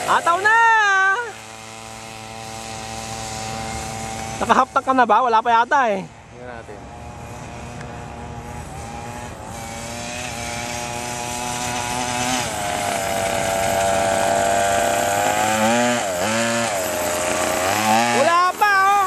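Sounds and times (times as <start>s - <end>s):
small two-stroke engine running: 0.0s - 19.0s.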